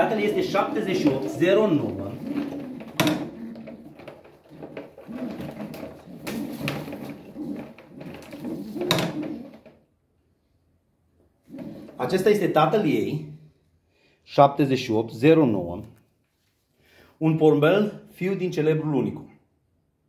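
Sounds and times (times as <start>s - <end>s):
pigeons cooing: 0.0s - 9.8s, 11.5s - 12.4s
knocks and clatter: 1.0s - 9.8s.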